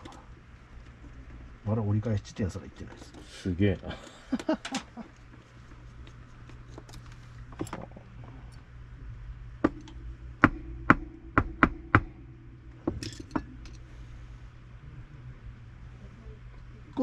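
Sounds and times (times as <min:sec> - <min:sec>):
metal parts and tools clicking: 0:12.9 - 0:13.8.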